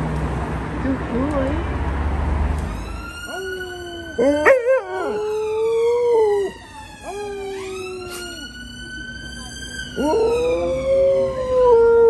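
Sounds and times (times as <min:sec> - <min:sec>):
wailing emergency siren: 0:02.7 - 0:12.0
dogs howling: 0:03.1 - 0:08.5, 0:09.9 - 0:12.0.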